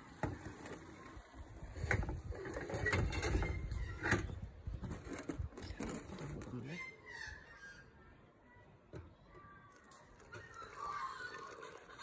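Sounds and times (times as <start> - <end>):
metal carafe knocking and scraping: 1.8 - 6.5.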